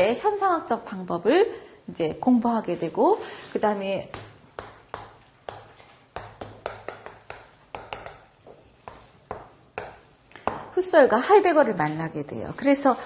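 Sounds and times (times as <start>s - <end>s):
chalk tapping on blackboard: 4.0s - 10.8s.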